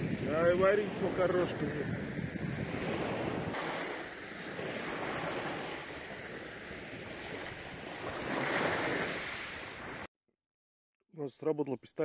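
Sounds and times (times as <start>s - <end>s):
wind buffeting microphone: 0.0s - 9.1s
small waves washing onto shore: 0.0s - 10.1s.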